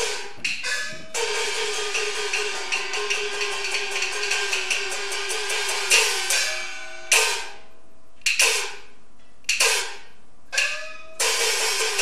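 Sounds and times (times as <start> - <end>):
gong and cymbal strikes: 0.0 - 7.7, 10.6 - 12.0.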